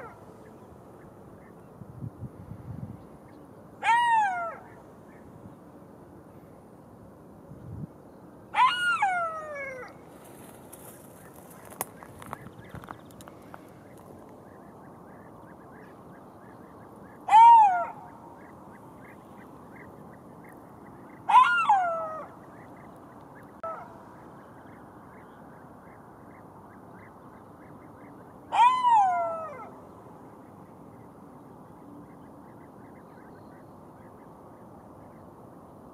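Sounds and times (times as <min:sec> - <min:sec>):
jackal yelping: 0:28.5 - 0:29.7.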